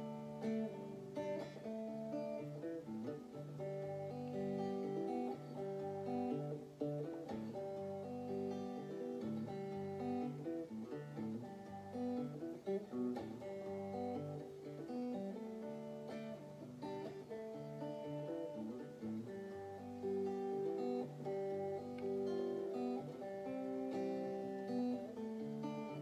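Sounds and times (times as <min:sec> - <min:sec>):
clean electric guitar: 0:00.0 - 0:26.0.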